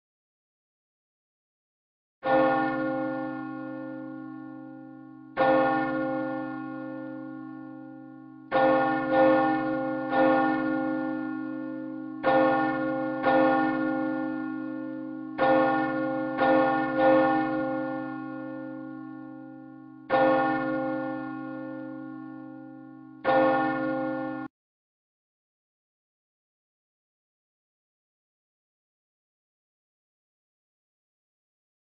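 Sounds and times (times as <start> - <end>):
church bell ringing: 2.2 - 24.5.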